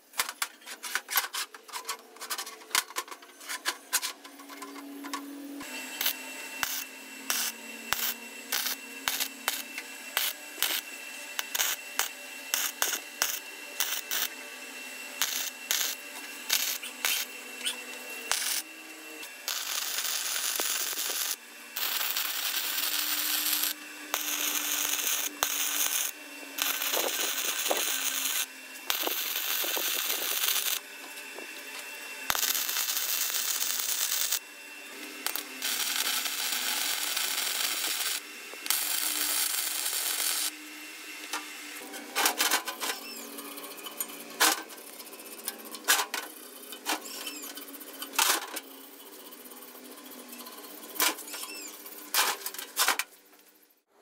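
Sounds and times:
welder arc crackling: 5.6s - 14.4s, 15.1s - 30.8s, 32.3s - 34.4s, 35.2s - 40.5s.

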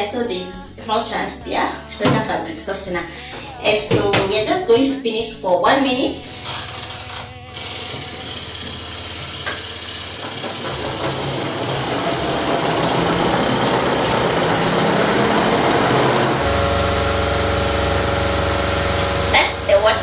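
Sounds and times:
spin-dryer motor hum: 6.3s - 20.0s
water rushing from spinning clothes: 10.1s - 16.8s.

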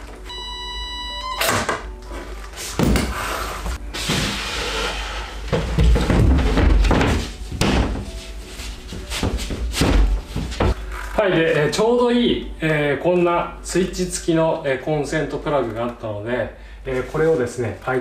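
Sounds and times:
background music: 0.0s - 18.0s
knocks and thuds: 5.5s - 8.2s, 9.0s - 10.8s.

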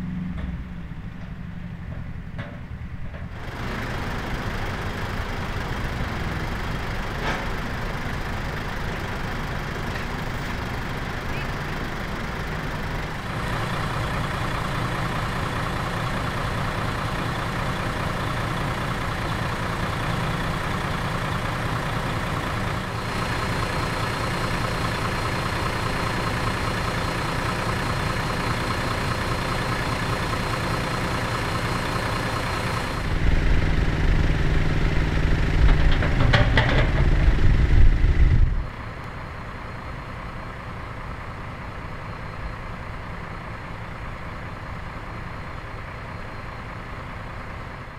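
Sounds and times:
diesel truck engine idling: 0.0s - 47.9s
engine knocks: 29.6s - 38.7s.

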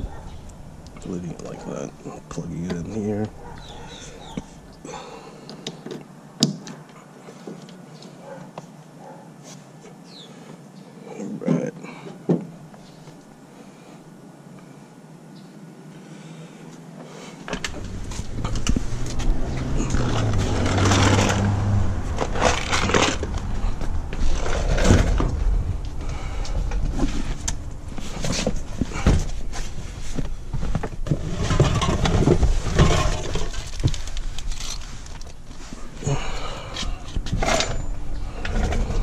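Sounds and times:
scrapes and knocks: 17.5s - 35.8s
low rumble: 17.6s - 30.6s
plastic bag crinkling: 33.2s - 35.8s.

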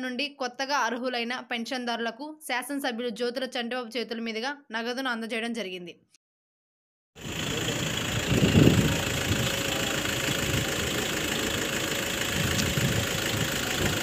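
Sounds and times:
car engine idling: 7.2s - 14.0s.

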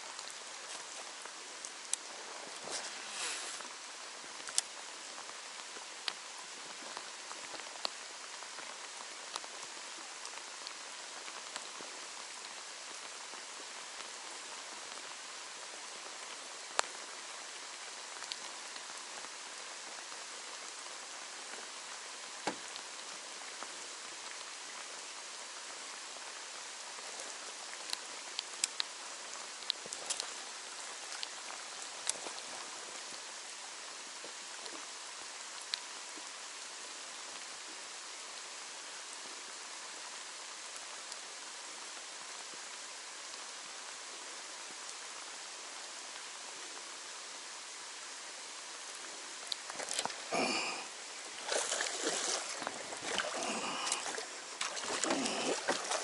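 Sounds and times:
steady rain hiss: 0.0s - 56.0s
raindrops ticking: 3.6s - 20.2s, 27.5s - 36.2s, 49.3s - 56.0s.

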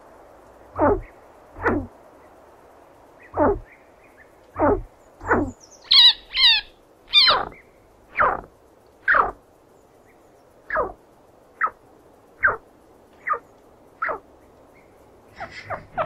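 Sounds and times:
chinchilla squeaking: 5.2s - 7.5s.

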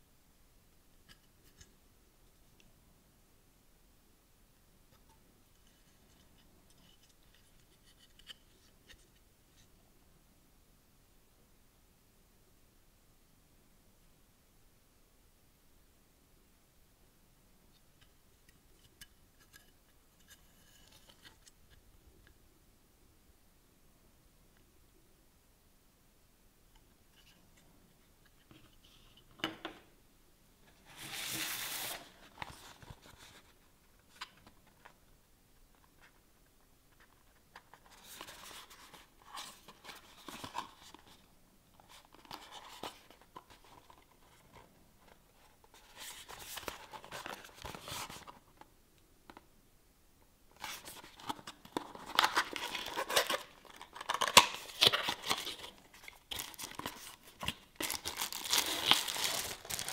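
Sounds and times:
packaging rustling and crinkling: 50.6s - 59.9s
packaging tearing: 52.0s - 55.7s, 57.8s - 59.9s.

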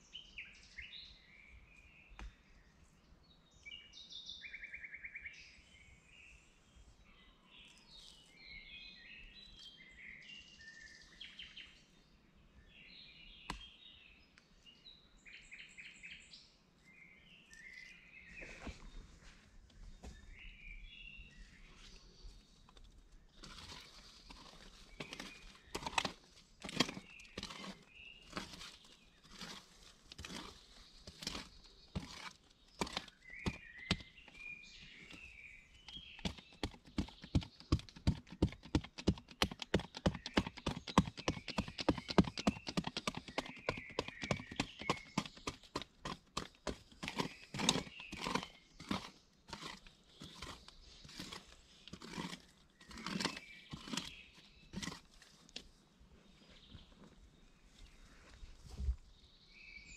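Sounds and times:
birds chirping: 0.0s - 59.9s.

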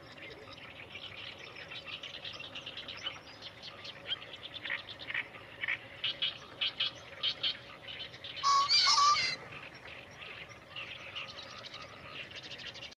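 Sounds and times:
pheasant crowing: 8.4s - 9.4s.

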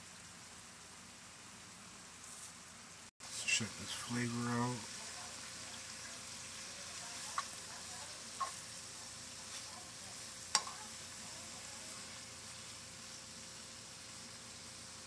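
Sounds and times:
vegetables sizzling in oil: 0.0s - 15.0s
metal spatula clicking on pan: 10.5s - 10.8s.

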